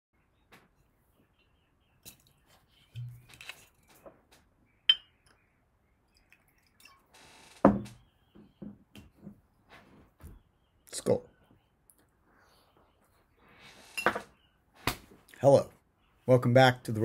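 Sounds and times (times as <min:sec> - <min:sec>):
glass clinking: 0:04.9 - 0:05.3
liquid pouring into glass: 0:06.1 - 0:07.1.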